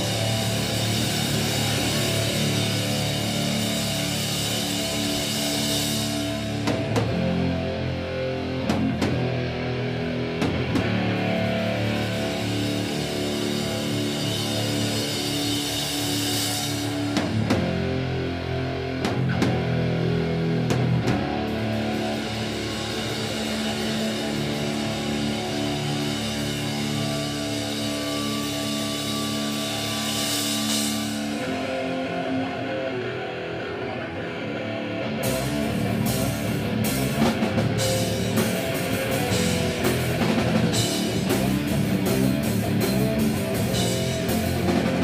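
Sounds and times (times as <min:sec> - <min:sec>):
electric guitar ringing chords: 0:00.0 - 0:45.0.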